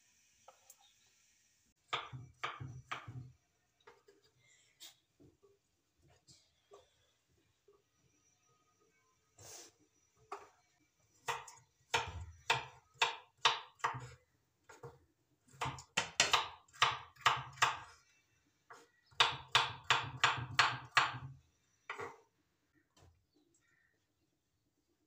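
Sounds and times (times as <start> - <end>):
knife chopping on wooden board: 1.9 - 3.3, 11.2 - 17.9, 18.7 - 21.3.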